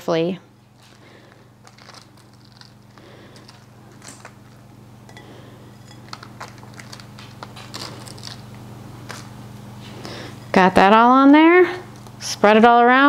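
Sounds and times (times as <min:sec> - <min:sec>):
cheese rustling and ticking: 0:00.7 - 0:10.2.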